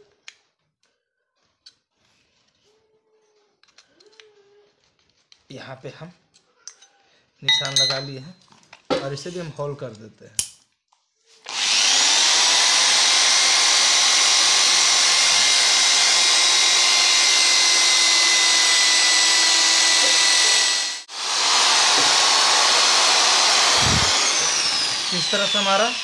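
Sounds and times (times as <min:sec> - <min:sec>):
electric drill boring through metal: 0:11.4 - 0:26.0.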